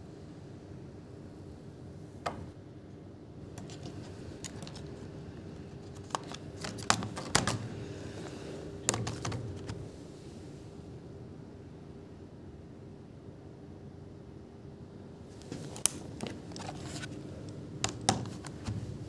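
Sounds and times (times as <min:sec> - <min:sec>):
laptop keyboard clicks: 0:03.6 - 0:05.0, 0:05.8 - 0:07.8, 0:08.8 - 0:09.8, 0:17.8 - 0:18.7.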